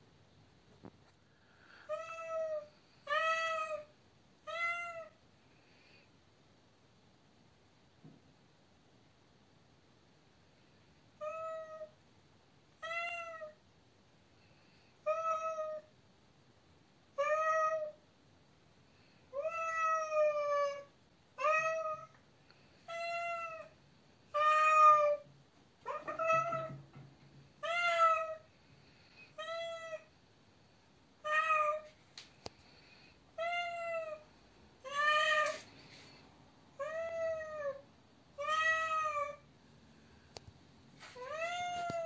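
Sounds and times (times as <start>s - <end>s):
cat meowing: 24.3s - 26.8s, 27.6s - 28.4s, 29.3s - 30.1s, 31.2s - 31.9s, 34.8s - 35.7s, 36.8s - 39.4s, 41.2s - 42.0s.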